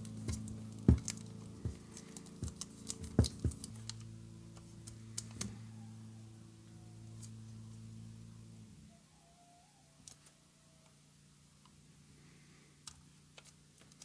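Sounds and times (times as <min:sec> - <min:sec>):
clicks and knocks of handling: 0:00.0 - 0:05.5
low electrical hum: 0:00.0 - 0:14.0.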